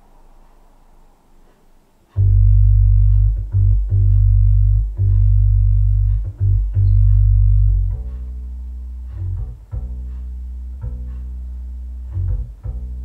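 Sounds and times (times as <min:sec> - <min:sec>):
faint hiss: 0:00.0 - 0:12.8
music with deep bass notes: 0:02.1 - 0:13.0.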